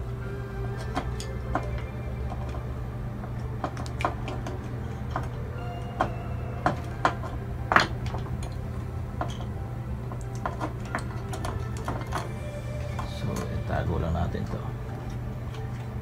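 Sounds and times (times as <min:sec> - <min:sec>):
steady low hum: 0:00.0 - 0:16.0
hands handling wires and switch boxes: 0:00.6 - 0:16.0.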